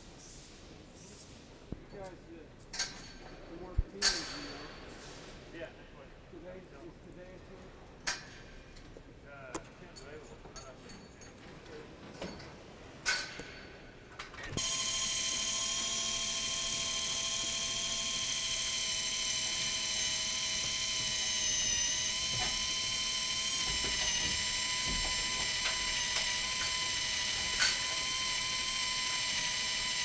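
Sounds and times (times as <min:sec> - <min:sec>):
cordless drill whining: 0:14.6 - 0:30.0.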